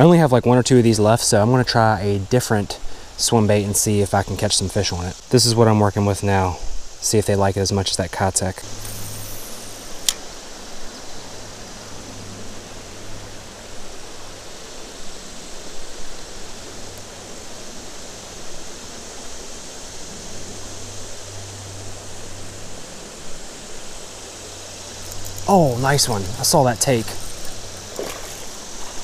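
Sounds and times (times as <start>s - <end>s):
flowing river water: 0.8s - 29.0s
sharp click: 8.8s - 10.3s.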